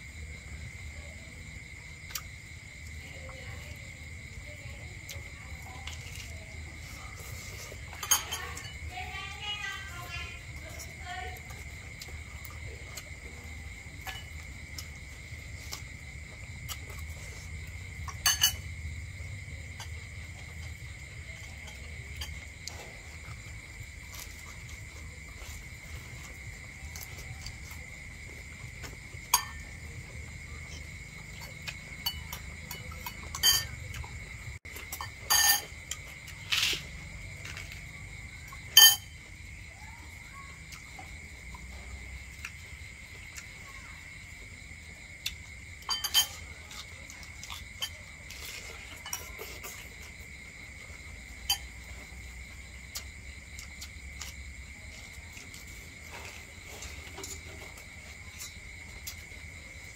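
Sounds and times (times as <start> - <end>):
crickets chirping: 0.0 - 59.9
utensils clinking against dishes: 7.8 - 8.9, 18.1 - 18.7, 29.3 - 29.8, 31.4 - 34.1, 34.8 - 36.8, 38.7 - 39.2, 45.8 - 50.0, 51.4 - 51.8.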